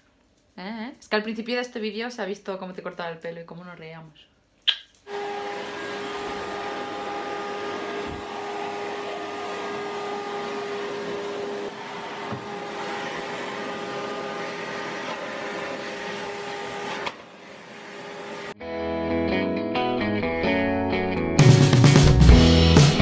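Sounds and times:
vacuum cleaner running: 5.1 - 18.6.

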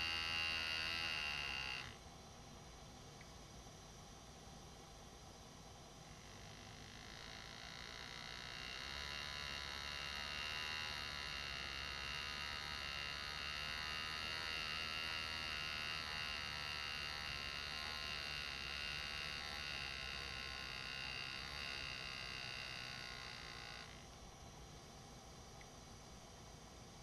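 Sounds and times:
air graver buzzing: 0.0 - 2.0, 6.2 - 24.1.

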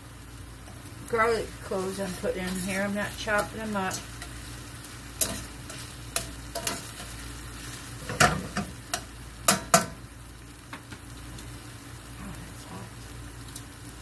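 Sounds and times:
onions sizzling: 0.0 - 14.0
metal utensil scraping a skillet: 2.5 - 4.5, 5.2 - 9.1
sharp knocks on a skillet: 8.1 - 10.0.

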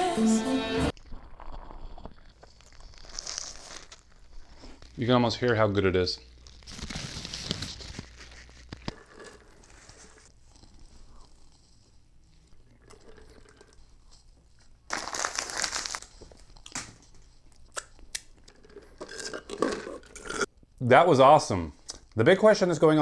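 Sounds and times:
chewing: 0.9 - 5.0, 7.7 - 15.1, 16.0 - 20.6
paper wrapper crumpling: 2.5 - 5.0, 6.2 - 10.2, 14.9 - 16.8.

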